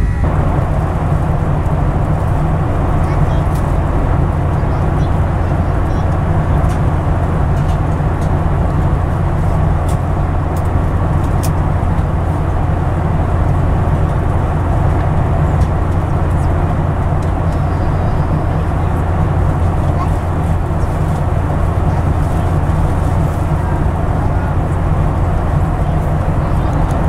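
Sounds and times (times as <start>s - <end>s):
jet engine cabin rumble: 0.0s - 27.0s.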